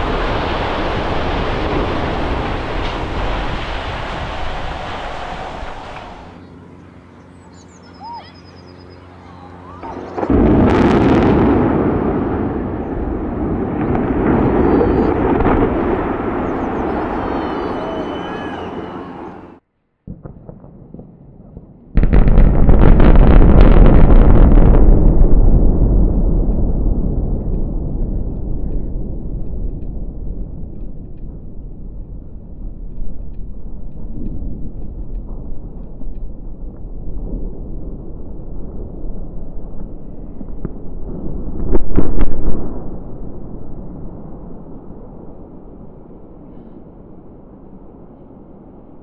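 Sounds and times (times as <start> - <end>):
demolition blast rumble: 0.0 - 6.4, 9.6 - 49.0
sharp crackling reports: 0.0 - 19.6.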